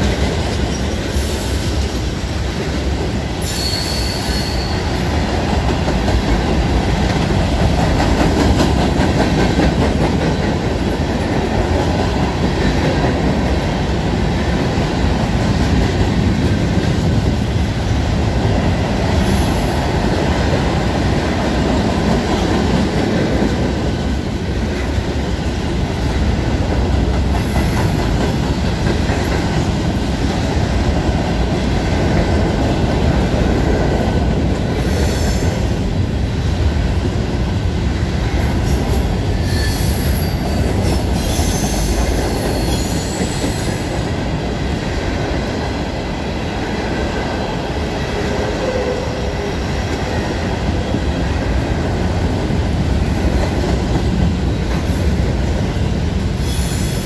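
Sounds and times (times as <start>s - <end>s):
freight train rumbling on rails: 0.0s - 57.0s
high wheel squeals: 3.4s - 5.0s.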